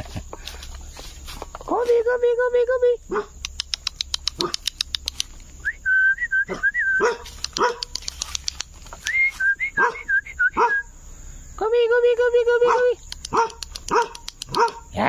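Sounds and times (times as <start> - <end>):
dogs barking: 3.1 - 3.4, 4.3 - 4.7, 6.5 - 8.4, 9.8 - 10.9, 12.6 - 15.0.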